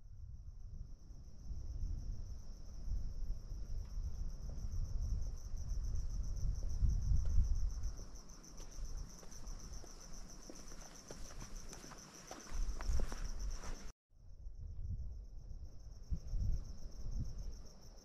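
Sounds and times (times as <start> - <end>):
insects trilling: 2.2 - 13.9
footsteps on asphalt: 6.6 - 13.9.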